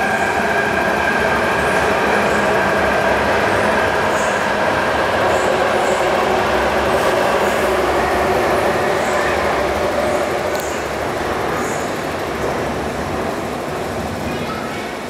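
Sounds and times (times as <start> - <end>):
electric train pulling out: 0.0 - 15.0.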